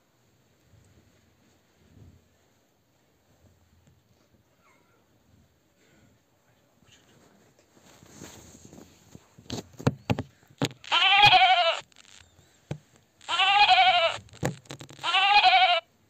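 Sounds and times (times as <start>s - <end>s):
sharp knocks: 9.8s - 10.9s
sheep bleating: 10.8s - 11.9s, 13.2s - 14.2s, 15.0s - 15.9s.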